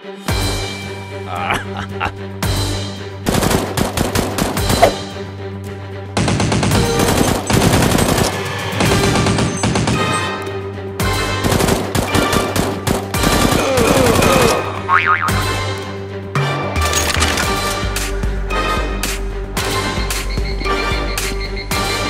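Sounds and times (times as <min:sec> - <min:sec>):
background music held notes: 0:00.0 - 0:22.0
machine-gun fire: 0:03.3 - 0:04.7, 0:06.2 - 0:10.1, 0:11.3 - 0:14.3.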